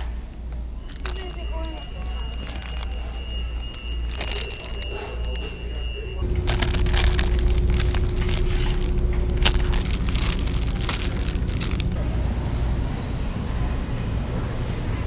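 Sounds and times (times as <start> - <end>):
steady low rumble: 0.5 - 14.6
plastic bags crinkling: 0.8 - 5.6, 6.2 - 12.0.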